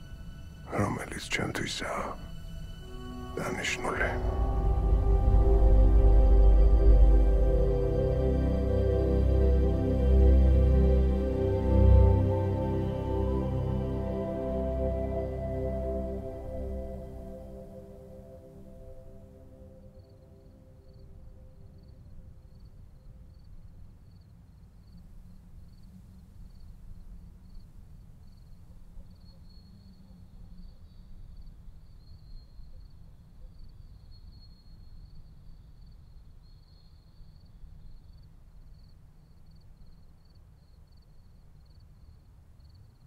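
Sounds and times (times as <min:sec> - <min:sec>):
insects trilling: 0:00.0 - 0:08.0
low rumble: 0:02.1 - 0:17.8.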